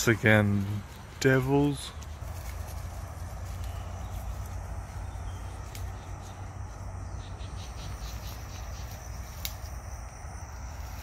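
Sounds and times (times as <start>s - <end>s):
insects trilling: 0.0s - 11.0s
steady low rumble: 0.0s - 11.0s.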